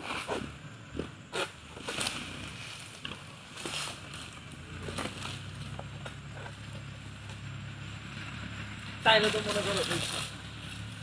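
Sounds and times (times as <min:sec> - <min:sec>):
low engine hum: 0:00.0 - 0:11.0
sickle rasping at frond: 0:01.3 - 0:05.6.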